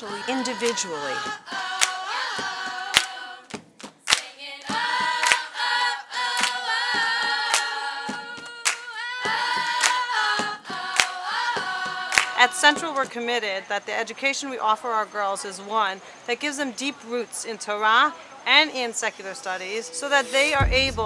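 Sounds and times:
a cappella choir singing: 0.0s - 13.2s
sharp claps: 0.6s - 5.5s, 6.3s - 13.1s.

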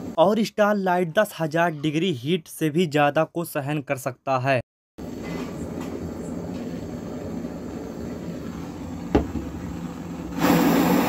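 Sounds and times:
blowtorch flame burning: 5.0s - 11.0s.

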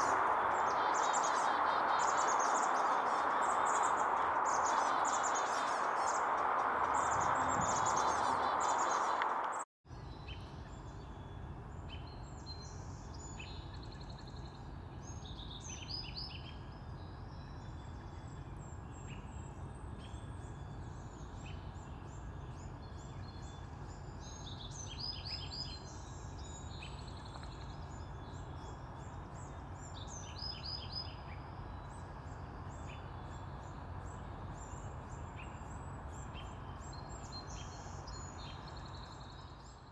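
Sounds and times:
birds chirping and calling: 0.0s - 9.6s
steady low background noise: 0.0s - 39.9s.

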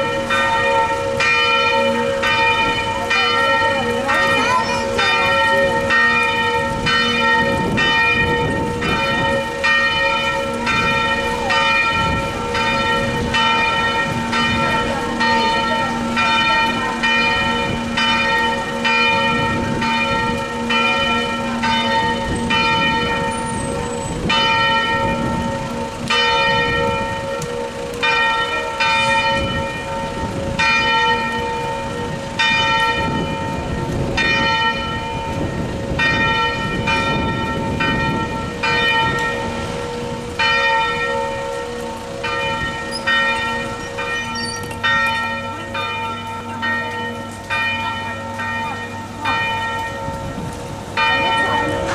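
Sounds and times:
church bell ringing: 0.0s - 51.9s
wind rumble on microphone: 5.7s - 9.7s, 10.6s - 15.2s, 17.2s - 20.6s, 21.6s - 28.0s, 28.8s - 40.8s, 49.9s - 51.9s.

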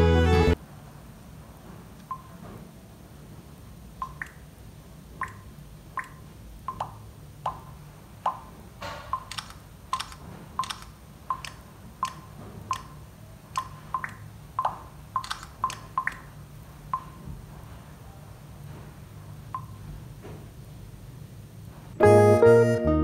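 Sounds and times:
camera shutter clicks and blips: 9.1s - 12.9s, 15.2s - 16.1s.

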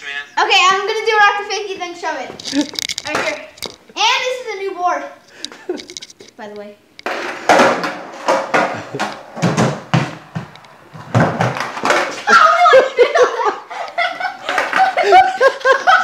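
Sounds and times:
skateboard wheels rolling on concrete: 0.7s - 16.0s
skateboard clacking and slapping down: 3.0s - 3.5s, 7.0s - 12.7s, 13.9s - 15.2s
laughter: 5.4s - 5.9s, 12.7s - 16.0s.

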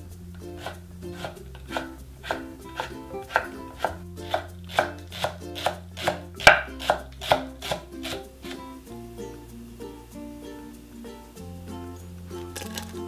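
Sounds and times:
light background music: 0.0s - 13.0s
knife chopping on wooden board: 0.6s - 8.2s.

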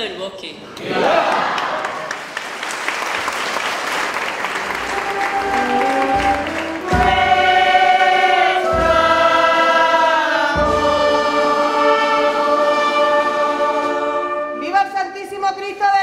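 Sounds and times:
choir singing held chords: 5.0s - 14.6s.

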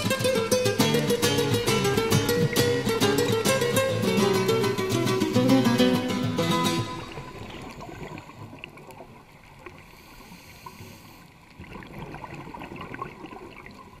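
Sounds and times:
low underwater rumble: 6.8s - 9.9s
underwater clicks and crackles: 7.0s - 14.0s.

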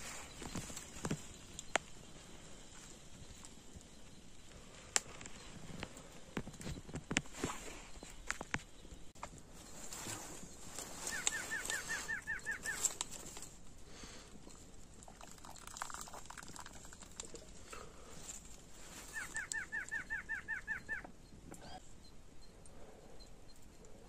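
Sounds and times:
bird calling falling notes: 9.9s - 13.4s, 18.8s - 21.8s.

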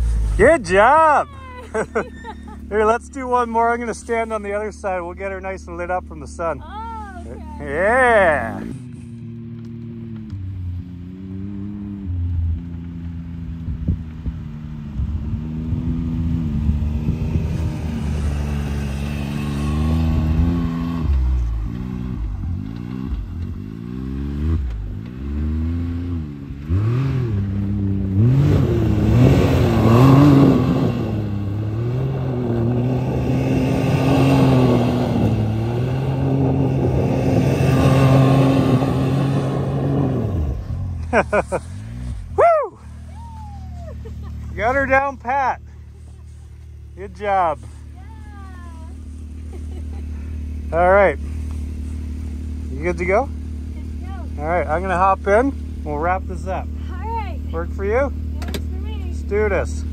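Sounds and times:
engine revving up and down: 7.6s - 14.0s, 15.0s - 42.6s, 48.7s - 56.7s.

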